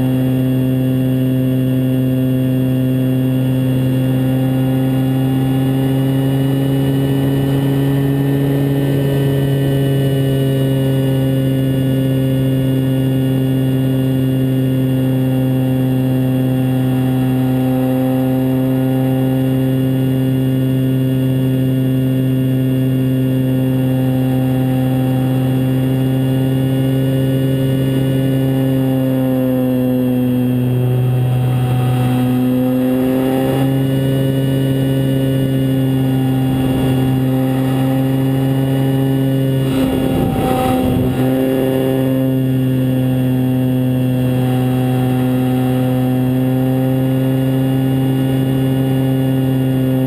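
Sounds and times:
model plane motor and propeller: 0.0 - 50.0
rush of air: 36.3 - 37.8, 39.5 - 42.2.

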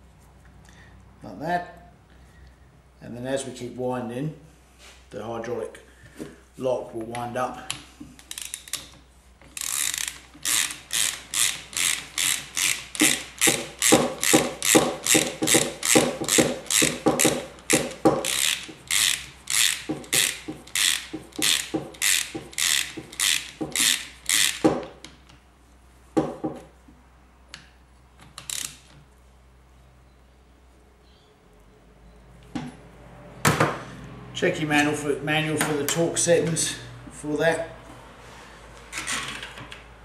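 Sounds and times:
socket ratchet clicking: 8.2 - 25.0, 28.2 - 28.9.

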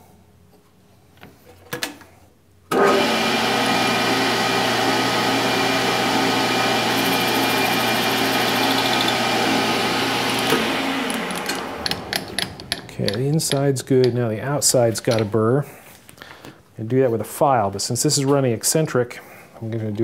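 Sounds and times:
metal lathe motor running: 2.8 - 12.9.

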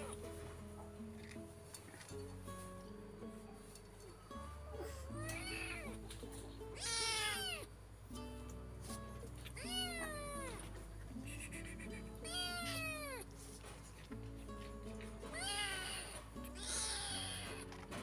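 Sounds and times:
soft background music: 0.0 - 18.0
kitten meowing: 4.7 - 6.0, 6.8 - 7.7, 9.6 - 10.6, 11.2 - 13.3, 15.3 - 17.6.

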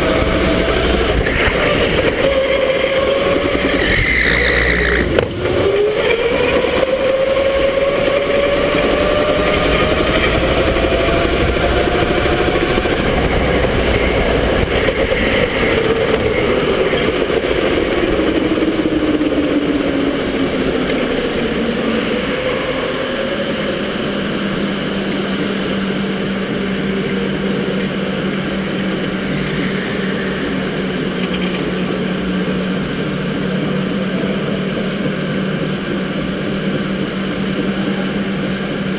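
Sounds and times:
electric motor whining: 0.0 - 24.2
constant rushing noise: 0.0 - 38.9.

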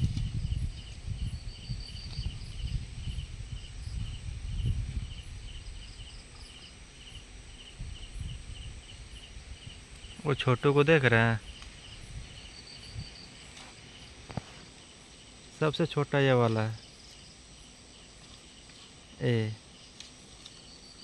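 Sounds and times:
elephants rustling through grass: 0.0 - 1.1, 13.2 - 14.9, 18.0 - 19.1, 19.7 - 21.0
crickets chirping: 0.0 - 21.0
high insect trill: 0.0 - 21.0.

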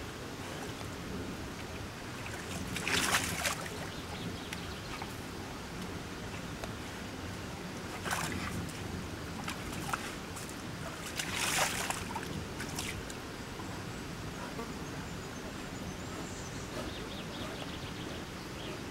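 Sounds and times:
bear splashing water: 2.0 - 5.2, 7.8 - 13.2.

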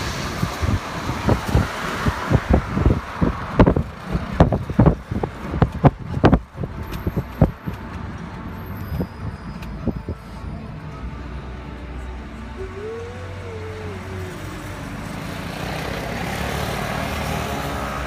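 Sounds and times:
car ride and traffic noise: 0.0 - 18.0
low thumps on microphone: 2.3 - 7.9.

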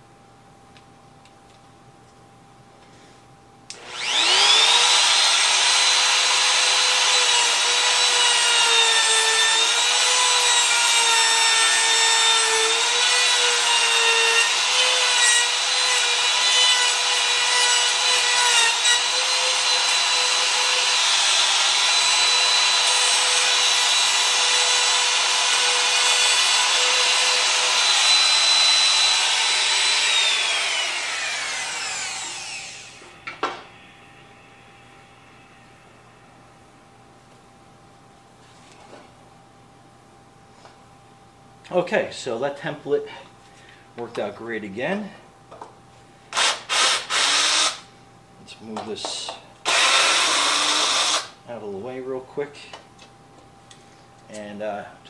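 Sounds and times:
router whining while cutting wood: 3.8 - 33.0, 46.4 - 47.8, 49.7 - 51.3.

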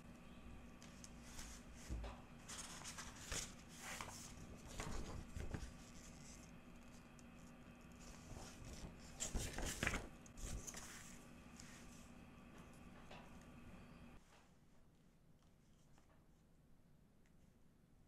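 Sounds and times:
faint steady hum: 0.0 - 18.0
paper rustling and sliding: 0.8 - 12.1.

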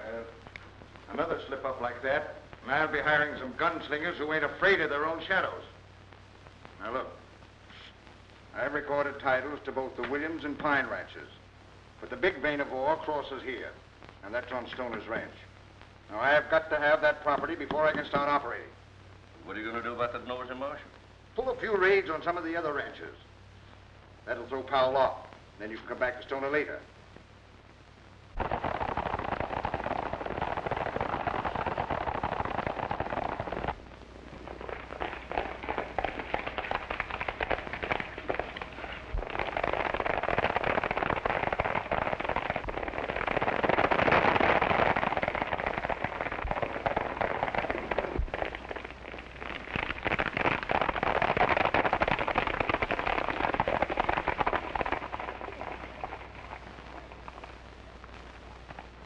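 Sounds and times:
horses galloping hoofbeats: 28.4 - 33.8, 34.4 - 48.9, 49.6 - 56.8.

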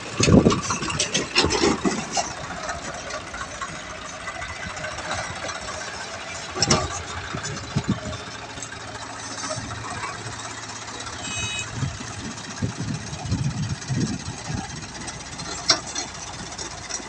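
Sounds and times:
tractor diesel engine under load: 0.0 - 17.0
sharp knocks and clanks: 0.2 - 10.5.

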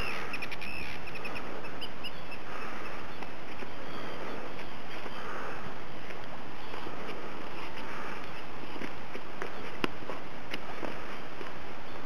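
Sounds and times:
bird calling: 0.0 - 5.8.

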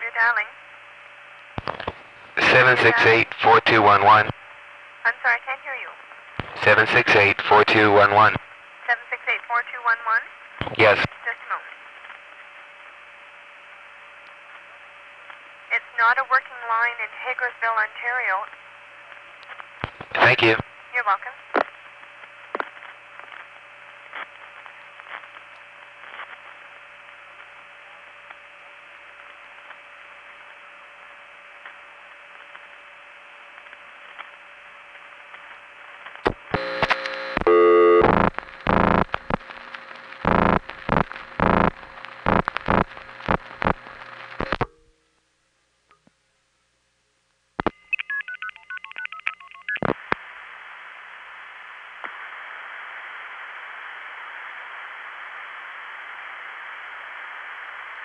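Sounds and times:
telephone line hiss: 1.6 - 4.3, 6.4 - 8.4, 20.0 - 20.6, 36.2 - 44.8, 47.6 - 58.0
faint steady tone: 36.5 - 49.7.

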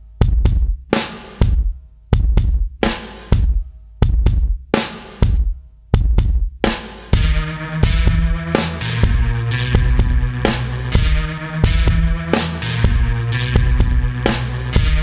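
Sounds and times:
drum kit beat: 0.0 - 15.0
bass line: 7.2 - 15.0
pitched instruments: 7.2 - 15.0.

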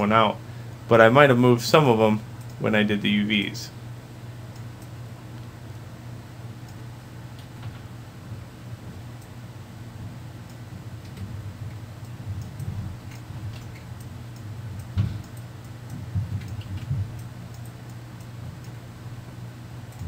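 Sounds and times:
low steady hum: 0.0 - 20.0
computer mouse clicks: 10.4 - 18.8.

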